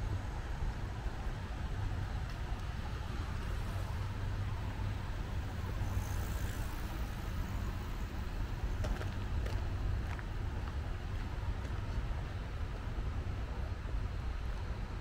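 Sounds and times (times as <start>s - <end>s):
distant road traffic rumble: 0.0s - 15.0s.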